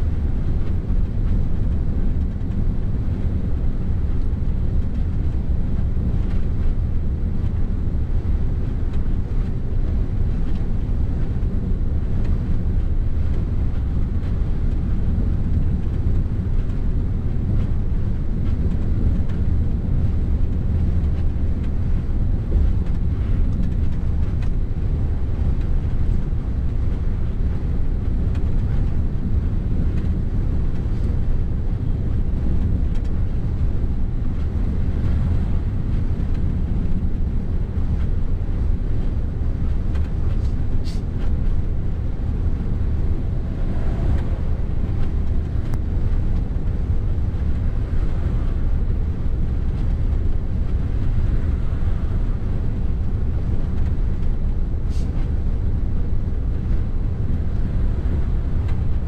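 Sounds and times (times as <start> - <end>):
truck engine and tyre drone: 0.0 - 59.0.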